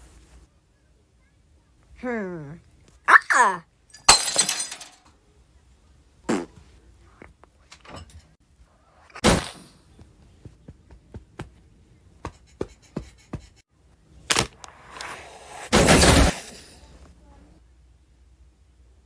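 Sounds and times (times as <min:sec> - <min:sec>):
cartoon thud: 0:09.2 - 0:09.8, 0:15.6 - 0:16.8.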